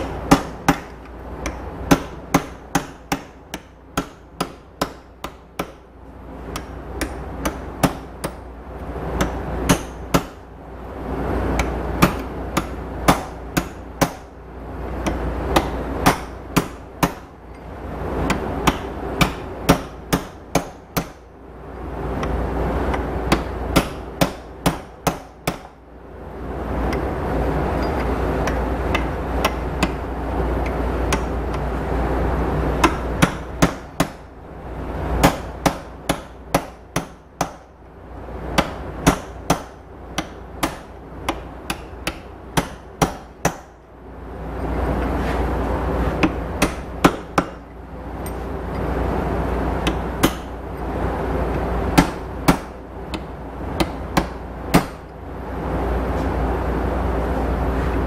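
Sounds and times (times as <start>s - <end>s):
hammer striking steel: 0.0s - 5.8s, 6.5s - 8.4s, 9.2s - 10.4s, 11.6s - 14.3s, 15.0s - 17.7s, 18.3s - 21.2s, 22.9s - 25.8s, 32.8s - 34.2s, 38.6s - 43.8s, 46.2s - 47.6s, 49.8s - 50.6s, 52.0s - 55.0s
steady rushing noise: 0.0s - 58.0s.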